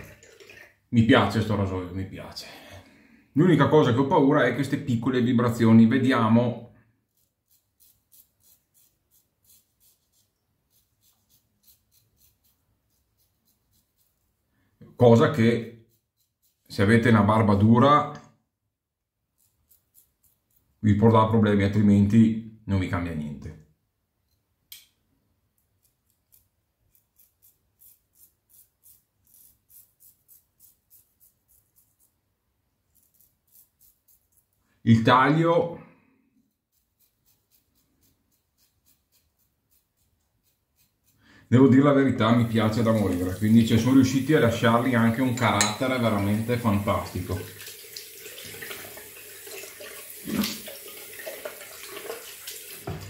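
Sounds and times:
razor scratching beard stubble: 7.0s - 14.4s, 15.1s - 17.2s, 19.2s - 20.9s, 25.6s - 32.2s, 32.8s - 34.6s, 36.5s - 47.4s.

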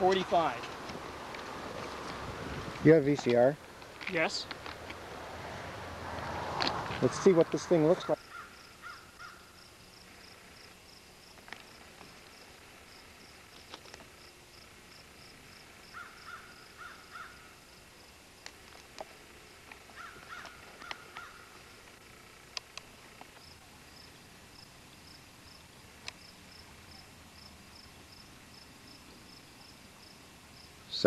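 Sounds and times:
insect chirping: 3.4s - 31.0s
bird calls: 7.8s - 9.6s, 15.9s - 17.6s, 19.8s - 21.7s
sharp clicks: 22.5s - 23.4s.

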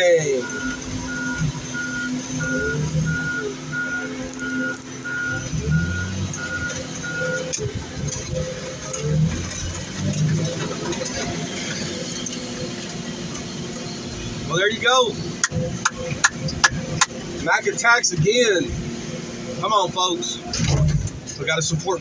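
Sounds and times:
loader engine running: 0.0s - 22.0s
reversing alarm beeping: 0.2s - 8.4s.

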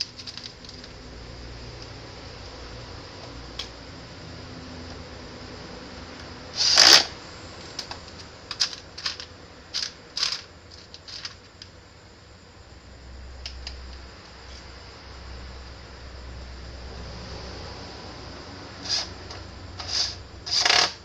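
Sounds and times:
rustling clatter: 6.6s - 11.5s
metal screws clinking and rattling: 7.8s - 11.4s.

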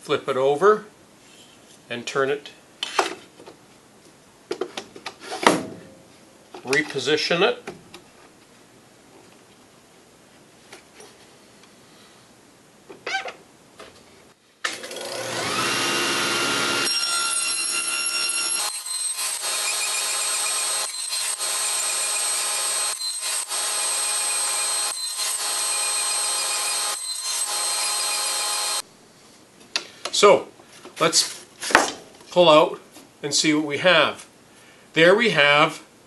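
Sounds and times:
table saw running: 14.8s - 28.8s.

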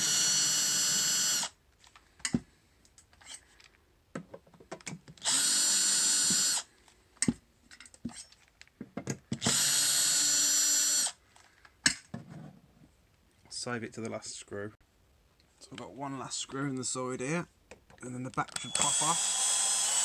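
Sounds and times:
power drill-driver running: 0.0s - 1.6s, 5.2s - 6.7s, 9.4s - 11.2s, 18.5s - 20.0s.

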